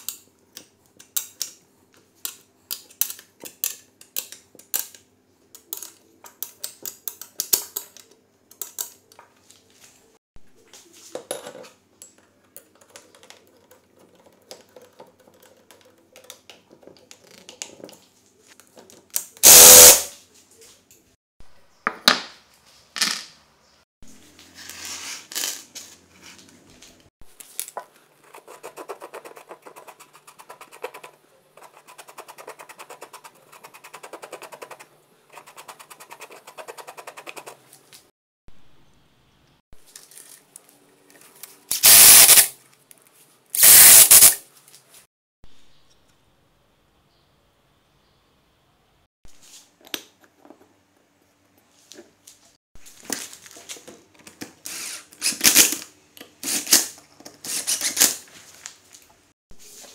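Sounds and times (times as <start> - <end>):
short loud hiss: 19.4 - 20.1, 43.6 - 44.4.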